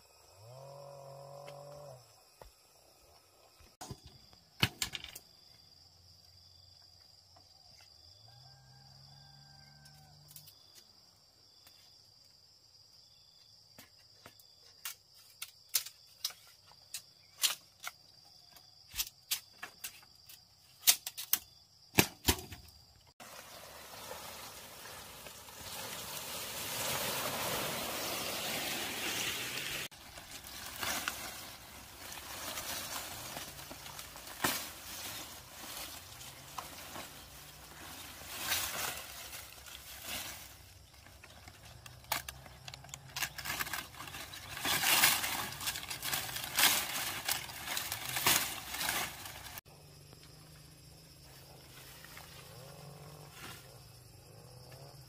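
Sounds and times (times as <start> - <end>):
machete striking bamboo: 20.8 - 22.7
dry palm leaves rustling: 23.2 - 49.7.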